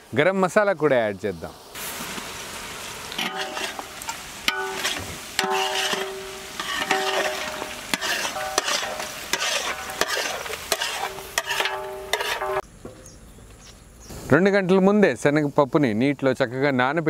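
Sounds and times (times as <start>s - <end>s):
meat sizzling: 1.6s - 12.6s
spatula scraping metal pot: 3.2s - 12.6s.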